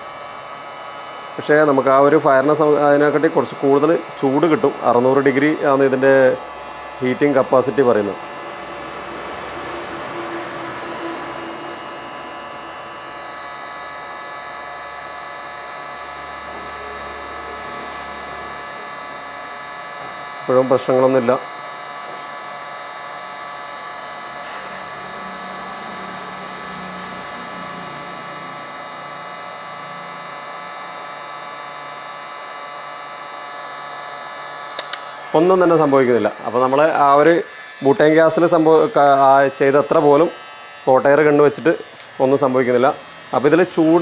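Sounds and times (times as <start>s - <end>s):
electric motor humming and whining: 0.0s - 44.0s.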